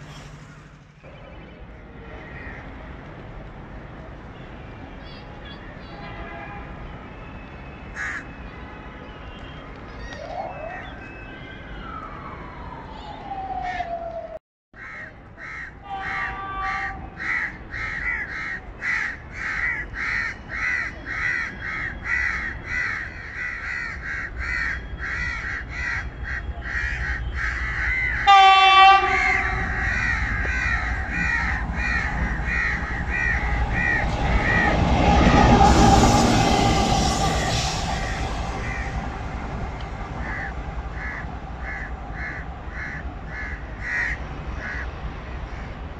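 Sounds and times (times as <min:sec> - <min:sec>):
crows cawing: 0:02.2 - 0:02.8, 0:08.0 - 0:08.3, 0:14.8 - 0:34.8, 0:40.2 - 0:45.8
locomotive horn blast: 0:05.9 - 0:06.9, 0:15.8 - 0:17.2, 0:28.2 - 0:30.1, 0:31.0 - 0:40.9
locomotive engine rumble: 0:26.5 - 0:45.9.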